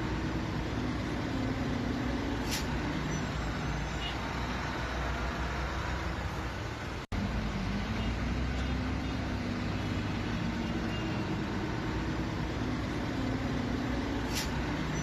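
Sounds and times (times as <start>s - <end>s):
idling traffic rumble: 0.0s - 15.0s.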